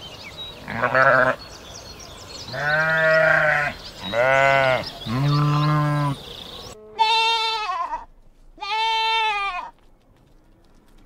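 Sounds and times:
farm animal bleating: 0.6s - 1.4s, 2.5s - 9.8s.

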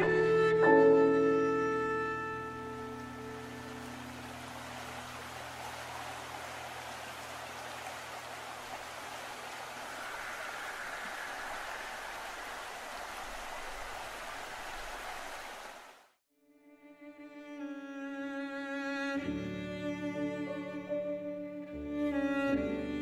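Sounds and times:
string music: 0.0s - 5.9s, 16.4s - 23.0s
water rushing: 2.4s - 16.2s.

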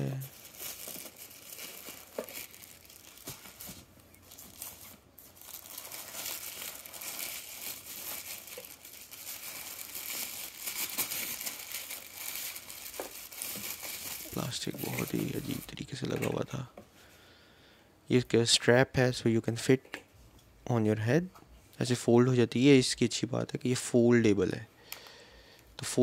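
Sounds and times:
plastic wrapping crinkling: 0.0s - 16.5s.

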